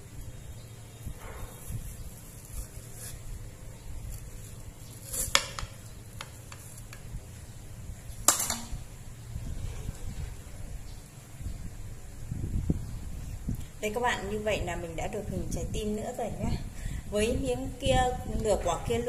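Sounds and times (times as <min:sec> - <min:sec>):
knife cutting watermelon: 0:01.1 - 0:07.1.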